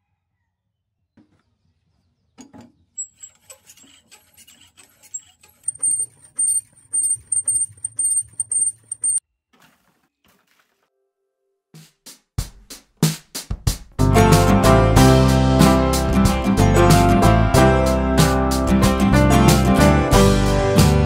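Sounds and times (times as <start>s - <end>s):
water sputtering from hose nozzle: 3.0s - 9.2s
thin high whistle: 5.7s - 9.2s.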